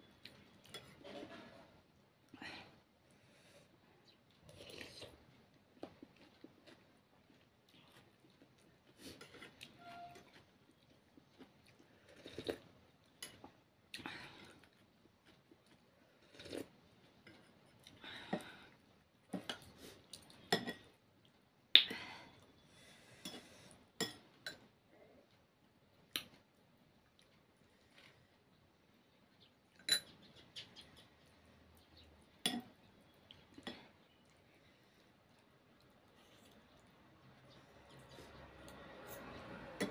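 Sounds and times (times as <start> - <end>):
slurping and chewing: 4.3 - 13.5, 14.4 - 20.5
spoons clinking on dishes: 20.5 - 20.9, 29.8 - 30.2.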